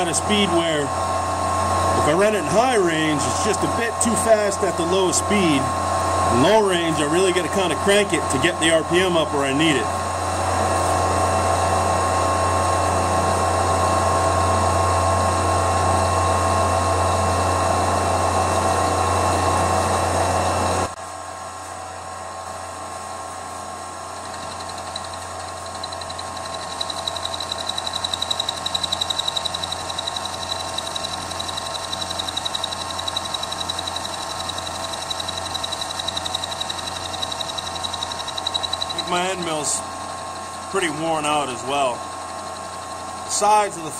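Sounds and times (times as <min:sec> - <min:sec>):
high whine: 0:00.0 - 0:21.0, 0:24.0 - 0:43.9
milling machine spindle humming: 0:00.0 - 0:21.0, 0:22.7 - 0:43.9
end mill cutting metal: 0:24.1 - 0:43.9.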